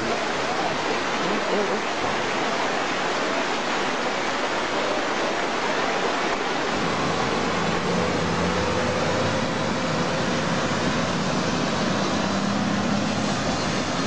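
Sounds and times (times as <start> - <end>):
floodwater rushing: 0.0 - 14.0
truck engine hum: 6.8 - 14.0.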